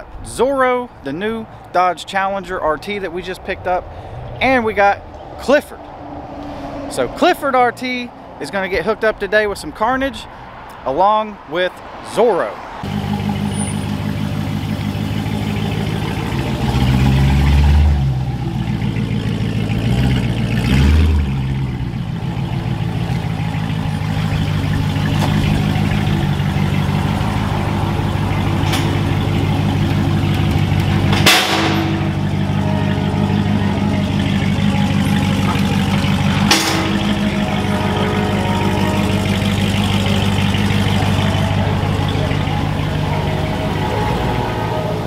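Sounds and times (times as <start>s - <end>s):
car engine idling: 12.7s - 45.0s
sharp knocks: 31.1s - 32.4s.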